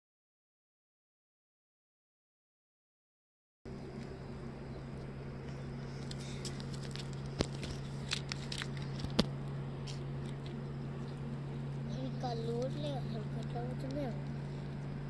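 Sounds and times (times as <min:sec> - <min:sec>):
low steady hum: 0:03.7 - 0:15.0.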